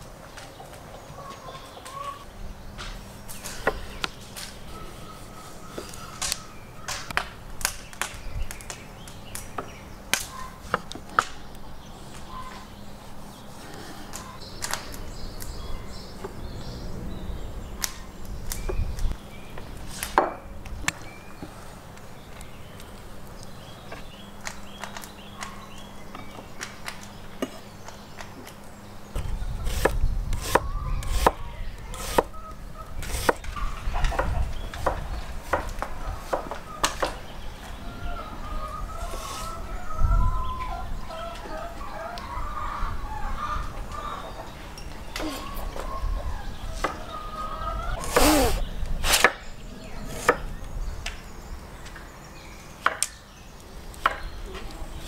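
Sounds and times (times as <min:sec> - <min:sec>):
chirpy calls: 0:00.4 - 0:07.2, 0:08.0 - 0:55.0
loud rising call: 0:48.0 - 0:48.6.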